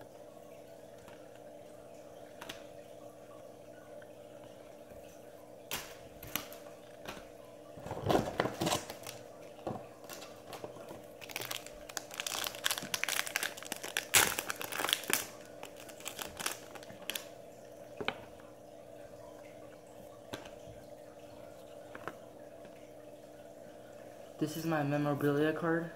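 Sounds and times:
wrapper tearing and crinkling: 7.9 - 9.2, 10.1 - 17.3.

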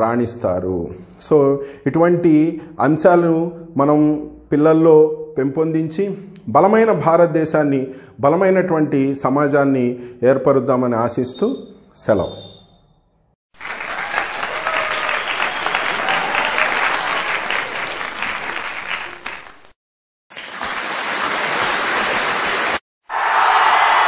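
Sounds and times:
crowd clapping: 13.6 - 19.8, 22.6 - 24.0.

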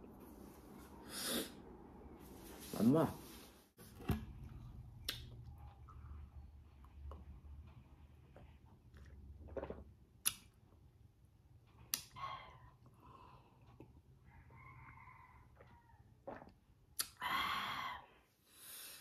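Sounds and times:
sipping and swallowing: 8.3 - 10.6, 16.2 - 17.2.

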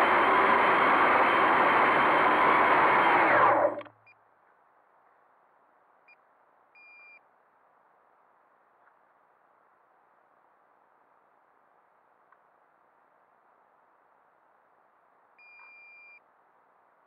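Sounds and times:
drone motors and propellers: 0.0 - 3.9
faint short electronic beeps: 6.8 - 7.3, 15.4 - 16.2.

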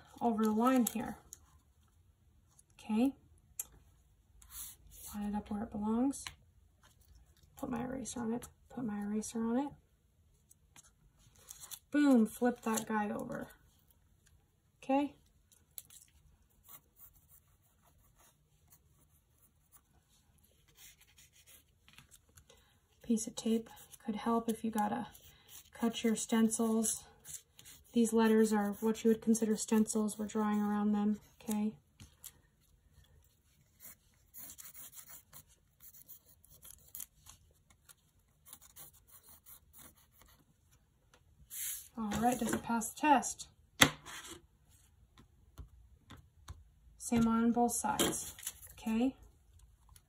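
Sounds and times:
pencil scratching on paper: 16.5 - 21.7, 25.0 - 31.3, 33.5 - 37.1, 38.4 - 40.4.

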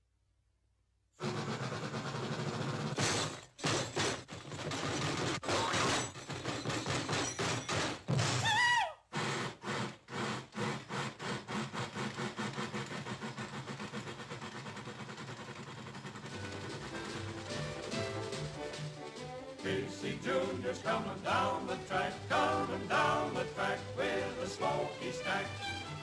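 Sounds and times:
steam locomotive chuffing: 1.2 - 3.0, 9.1 - 26.0.

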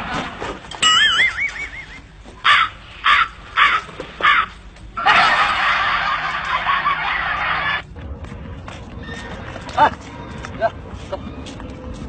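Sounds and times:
crow cawing: 2.4 - 7.8.

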